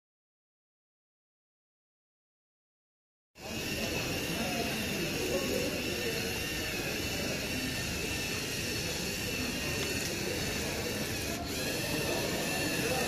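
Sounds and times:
electric motors whining: 3.4 - 13.0.

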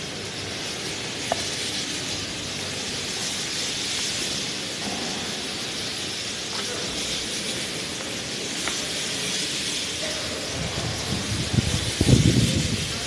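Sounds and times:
concrete floor grinder hissing: 0.0 - 13.0.

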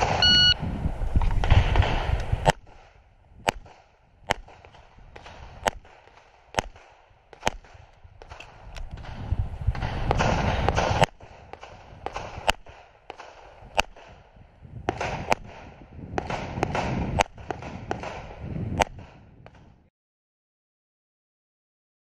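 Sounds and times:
microphone rushing noise: 0.0 - 2.5, 8.5 - 12.5, 14.5 - 19.9
pistol shots: 1.4 - 14.2, 14.9 - 19.6.

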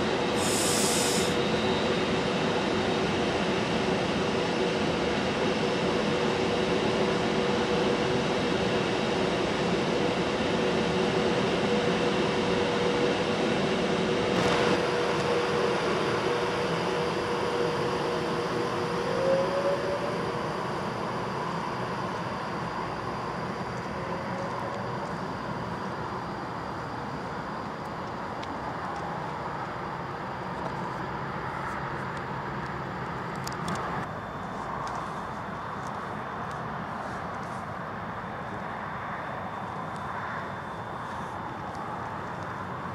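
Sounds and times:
rail noise: 0.0 - 42.9
train electrical hum: 0.0 - 42.9
short rising whines: 13.7 - 26.5.

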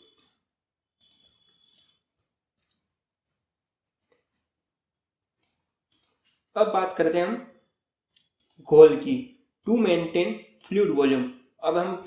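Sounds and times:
computer mouse clicks: 1.0 - 2.0, 5.4 - 6.4, 8.1 - 8.8.

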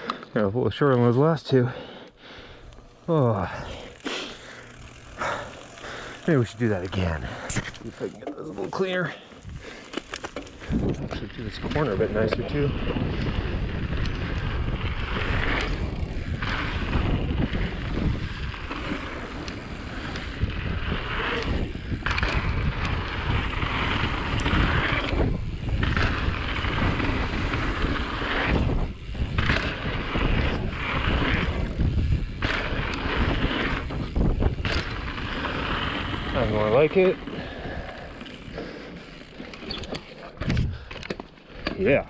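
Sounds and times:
bike rattling: 0.7 - 42.0
tyres rolling on dirt: 3.2 - 42.0
wind buffeting microphone: 10.5 - 39.8, 40.4 - 40.9.

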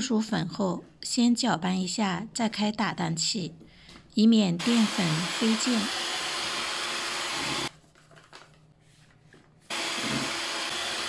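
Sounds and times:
electric hand mixer whirring: 4.6 - 7.7, 9.7 - 11.0.

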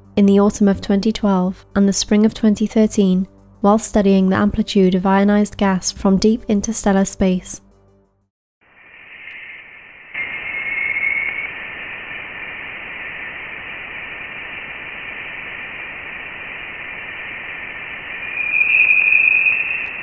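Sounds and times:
steady radio-like hiss: 8.6 - 20.0
thin whistling tone: 8.8 - 12.2, 17.8 - 20.0.

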